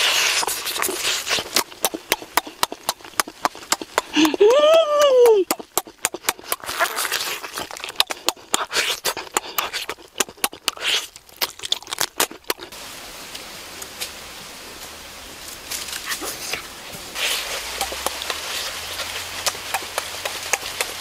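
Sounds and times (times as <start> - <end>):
chewing and tearing chicken: 0.0 - 4.5, 5.4 - 12.8, 17.2 - 21.0
lip smacks: 0.0 - 12.8, 16.0 - 21.0
background hiss: 0.0 - 21.0.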